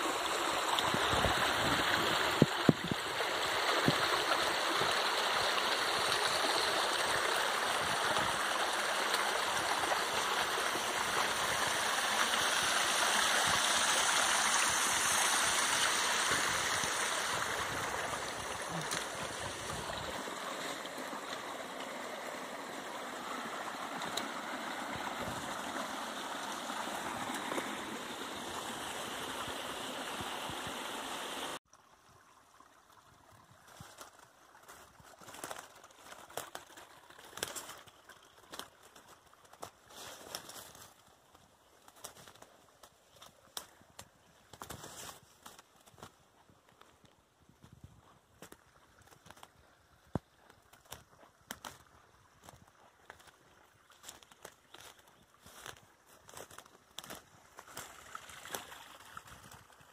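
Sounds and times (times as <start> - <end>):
stream splashing over rocks: 0.0 - 47.4, 48.3 - 59.9
footsteps in leaf litter: 50.5 - 59.7.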